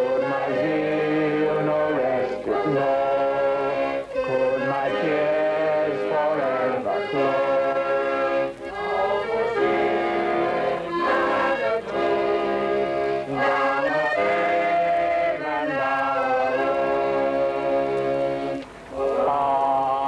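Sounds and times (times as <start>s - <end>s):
accordion playing slow chords: 0.0s - 18.9s
voices singing along: 0.0s - 20.0s.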